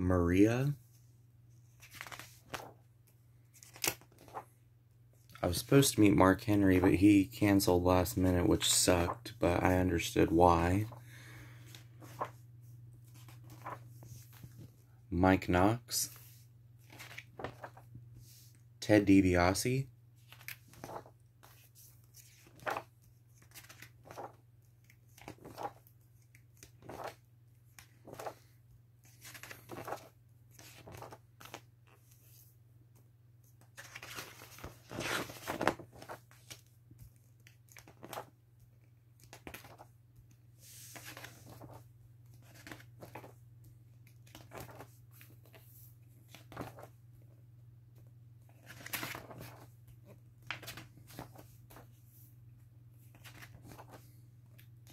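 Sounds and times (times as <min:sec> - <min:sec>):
pages turning: 0:01.6 - 0:02.8, 0:03.5 - 0:04.5, 0:11.6 - 0:12.4, 0:13.0 - 0:14.8, 0:16.1 - 0:18.6, 0:20.2 - 0:32.5, 0:33.5 - 0:38.3, 0:39.2 - 0:39.9, 0:40.6 - 0:43.4, 0:44.0 - 0:46.9, 0:48.5 - 0:52.0, 0:53.0 - 0:54.9.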